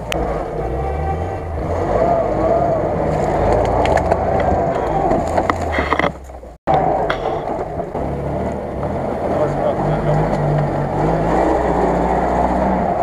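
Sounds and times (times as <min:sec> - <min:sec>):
off-road vehicle engines running: 0:00.0 - 0:13.0
scattered knocks and clicks: 0:03.5 - 0:08.1.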